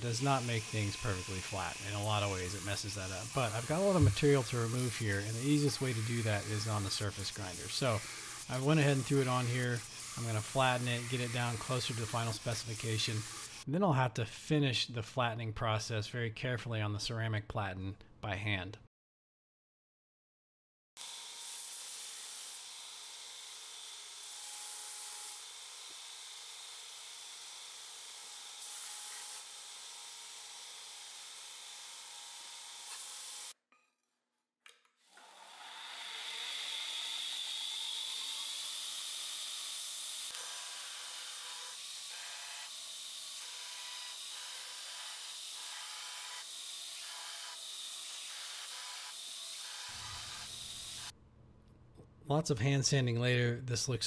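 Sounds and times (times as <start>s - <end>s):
belt grinder grinding steel: 0.0s - 13.7s, 35.1s - 51.2s.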